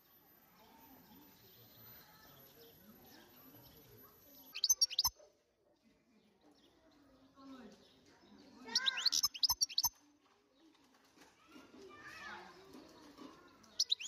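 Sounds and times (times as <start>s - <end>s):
faint low background murmur: 0.0s - 14.0s
bird twittering chirps: 4.4s - 5.1s, 8.6s - 10.0s, 13.7s - 14.0s.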